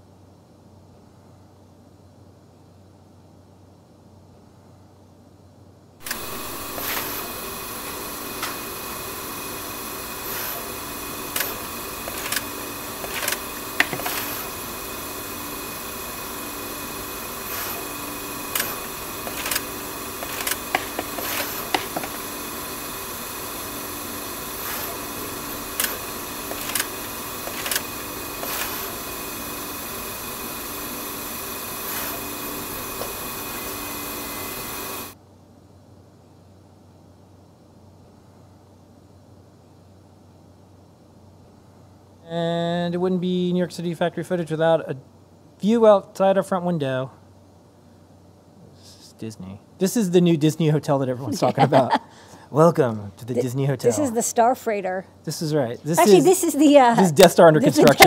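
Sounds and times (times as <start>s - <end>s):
machine mechanical hum: 0.0s - 58.0s
sharp mechanical clicks: 6.0s - 15.8s, 17.3s - 22.8s, 24.6s - 29.9s.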